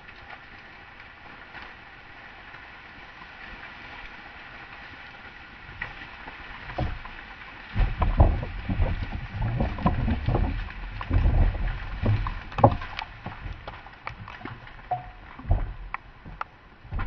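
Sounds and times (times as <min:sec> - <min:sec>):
mud and debris thumping down: 0:07.7 - 0:17.0.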